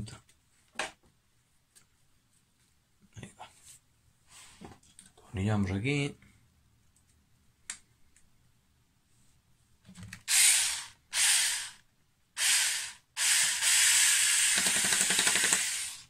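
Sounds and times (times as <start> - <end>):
cordless drill driving screw: 10.2 - 11.8, 12.4 - 16.0.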